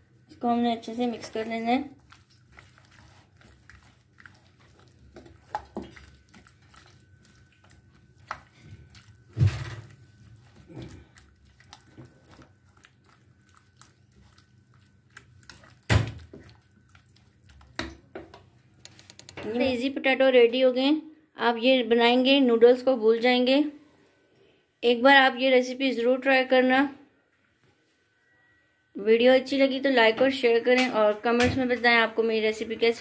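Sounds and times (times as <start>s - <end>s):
wet squelches: 0.3s - 19.4s.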